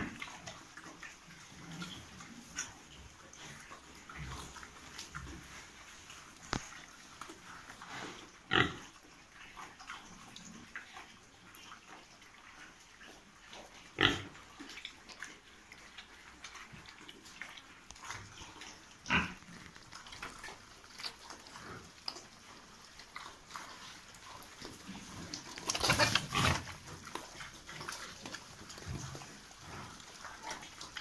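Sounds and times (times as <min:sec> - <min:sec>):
pigs chewing and snuffling: 0:00.0 - 0:31.0
pig calls: 0:25.6 - 0:26.8.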